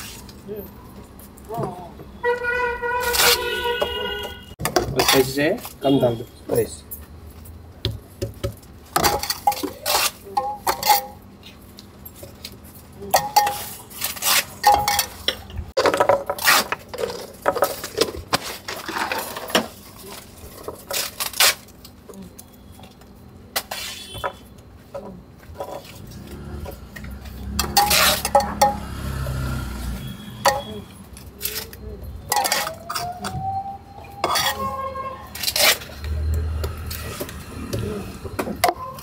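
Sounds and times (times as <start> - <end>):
spoon clinking against pots: 13.1 - 13.8, 30.4 - 30.8, 32.3 - 33.1, 34.2 - 35.7.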